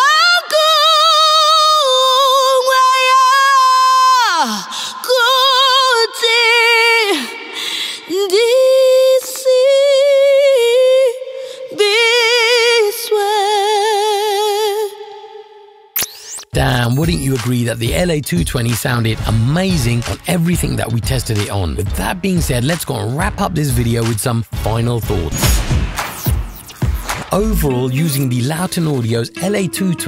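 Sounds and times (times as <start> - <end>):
woman singing unaccompanied: 0.0 - 15.3.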